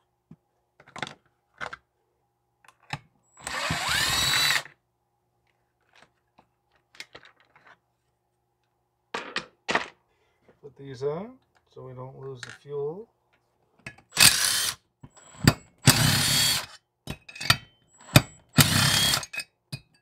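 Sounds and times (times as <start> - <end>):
drill motor whirring: 3.4 - 4.7, 14.2 - 16.7, 18.0 - 19.3.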